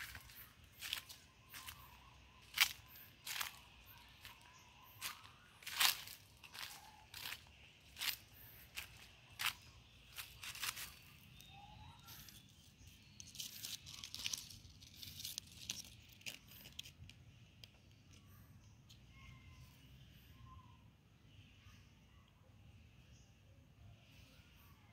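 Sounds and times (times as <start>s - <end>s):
footsteps crunching dry leaves: 0.0s - 12.4s, 13.0s - 16.4s.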